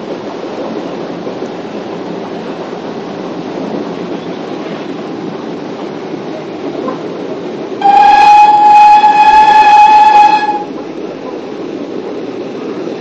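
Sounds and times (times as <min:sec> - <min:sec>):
moving train running noise: 0:00.0 - 0:13.0
steam whistle blast: 0:07.8 - 0:10.7.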